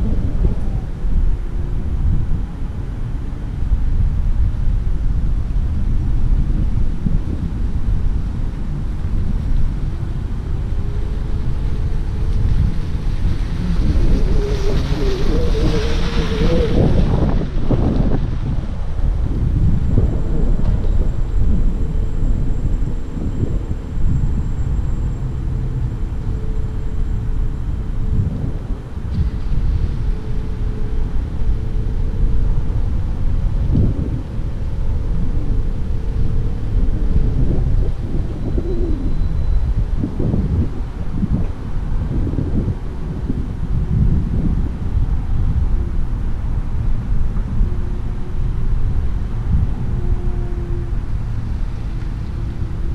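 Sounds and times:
car tyres on asphalt: 0.0 - 52.9
faint steady hum: 0.0 - 52.9
wind buffeting microphone: 0.0 - 52.9
wavering car tone: 10.0 - 18.2.

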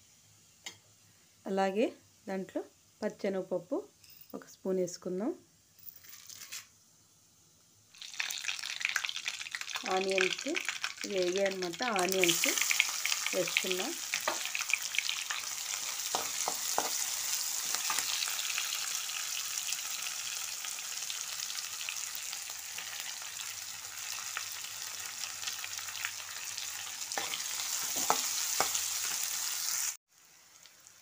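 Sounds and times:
onions sizzling in oil: 7.3 - 31.0
spatula scraping pan: 27.1 - 28.9.

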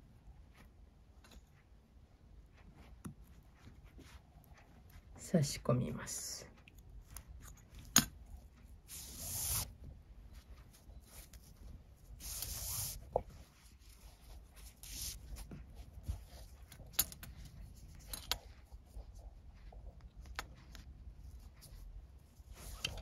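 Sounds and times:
cord swishing through buckle: 6.6 - 23.0.

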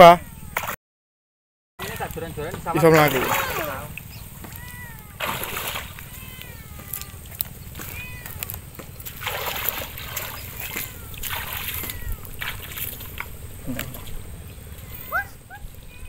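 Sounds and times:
wading splashes in shallow water: 1.8 - 15.5
short high calls: 14.7 - 16.0.

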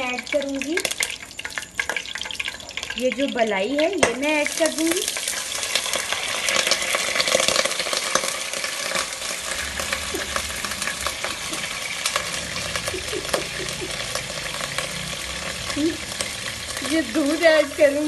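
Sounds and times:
cream sizzling in hot ghee: 0.0 - 18.0.

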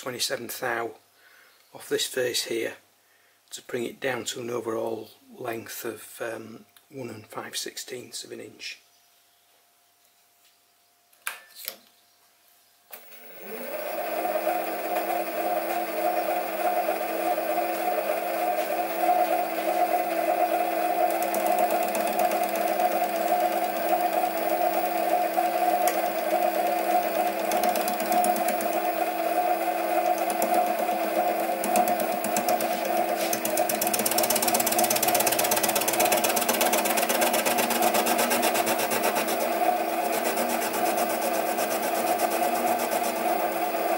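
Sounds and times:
lathe motor humming: 13.0 - 43.9
lathe tool cutting hiss: 13.0 - 43.9.

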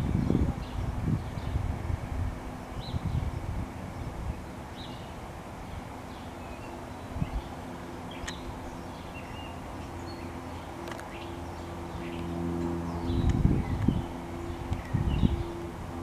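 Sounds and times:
wind gust on microphone: 0.0 - 4.6, 7.0 - 7.6, 12.3 - 16.0
low outdoor rumble: 0.0 - 16.0.

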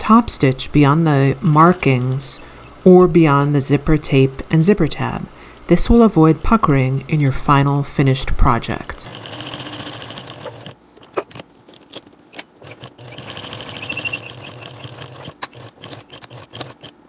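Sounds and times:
sewing machine stitching: 9.0 - 11.9, 12.6 - 17.0.

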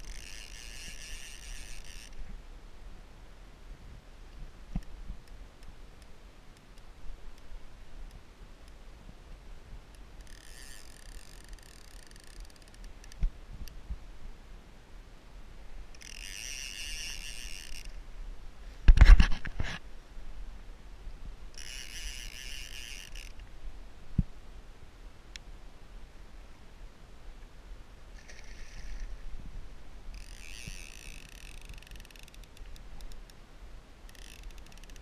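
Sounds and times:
fishing reel whirring: 0.0 - 2.2, 10.2 - 13.2, 15.9 - 18.0, 21.6 - 23.4, 28.2 - 29.2, 30.1 - 33.1, 34.1 - 35.0.

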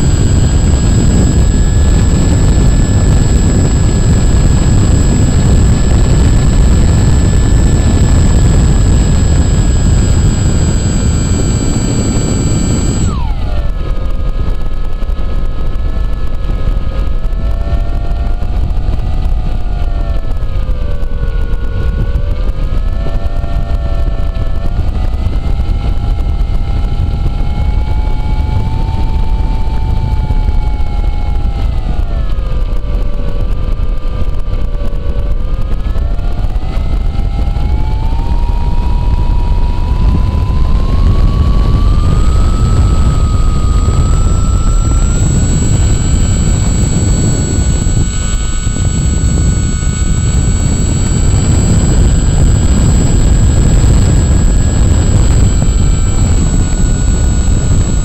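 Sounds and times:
electric motor propeller whine: 0.0 - 58.0
wind rumble on microphone: 0.0 - 58.0.

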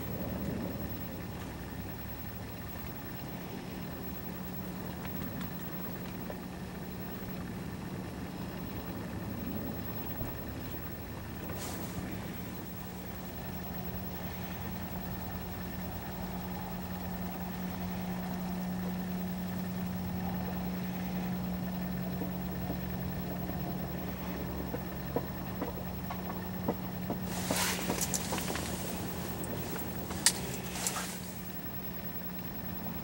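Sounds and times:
steady low hum: 0.0 - 33.0
rustling noise: 11.5 - 12.3, 27.1 - 31.5
scattered clicks: 24.7 - 31.6.

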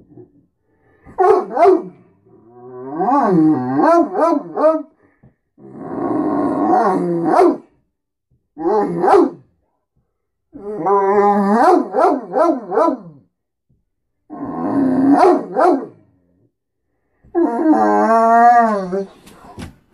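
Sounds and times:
dog yowling and howling: 2.5 - 4.9, 10.6 - 13.1, 17.3 - 19.2.

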